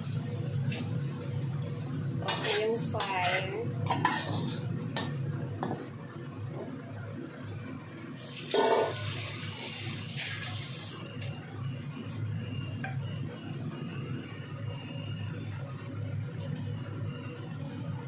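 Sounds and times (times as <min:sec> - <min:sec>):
shrimp sizzling in a wok: 0:00.0 - 0:05.9, 0:08.2 - 0:11.0.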